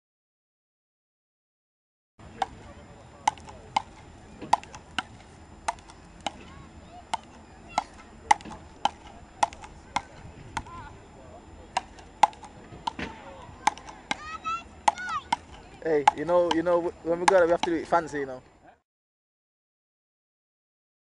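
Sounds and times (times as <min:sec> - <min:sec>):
ball cracking off wooden paddles: 0:03.3 - 0:06.5, 0:07.1 - 0:10.8, 0:11.7 - 0:17.9.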